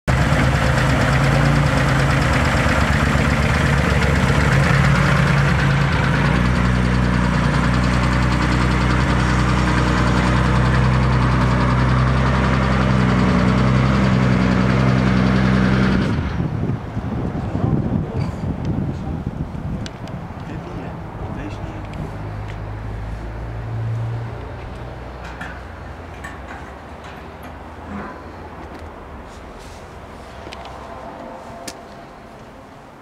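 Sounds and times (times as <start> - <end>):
car engine idling: 0.1 - 14.8.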